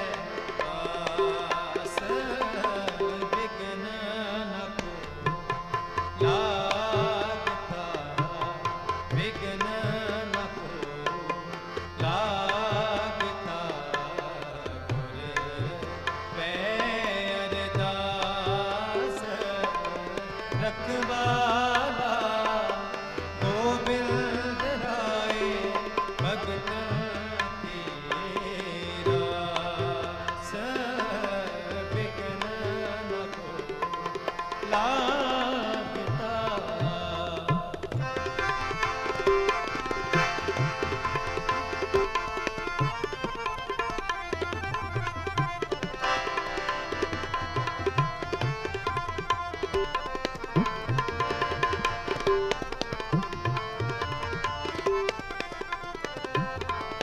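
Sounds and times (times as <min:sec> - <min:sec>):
person singing: 0:00.0 - 0:41.0
harmoniums: 0:00.0 - 0:57.0
tabla playing a rhythm: 0:00.0 - 0:57.0.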